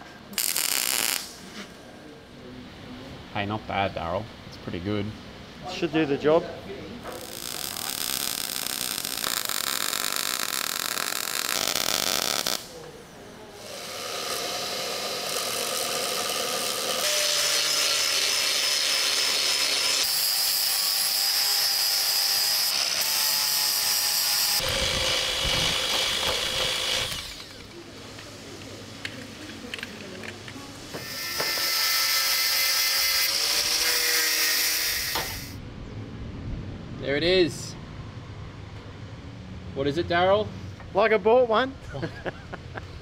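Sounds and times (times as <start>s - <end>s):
welder crackling and hissing: 0.3s - 1.8s, 7.0s - 13.0s, 13.6s - 29.5s, 30.8s - 35.6s
angle grinder whining: 13.6s - 27.7s, 31.0s - 35.6s.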